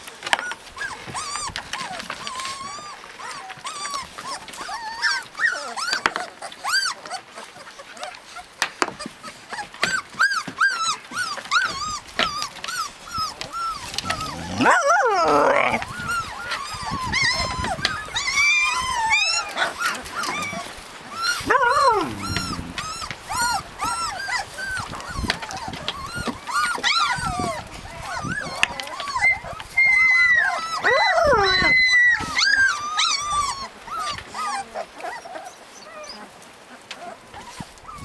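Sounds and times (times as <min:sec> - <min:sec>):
puppies whimpering and squeaking: 0:00.0 - 0:38.0
long puppy cries sliding down: 0:00.4 - 0:07.2, 0:09.5 - 0:38.0.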